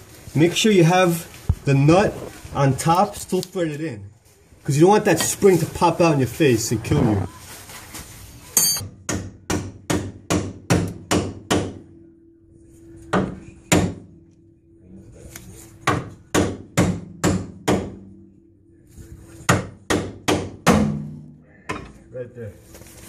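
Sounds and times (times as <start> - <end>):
metal pipe ringing: 8.6 - 8.9
hammer striking steel pipe: 13.1 - 14.2, 19.5 - 21.8.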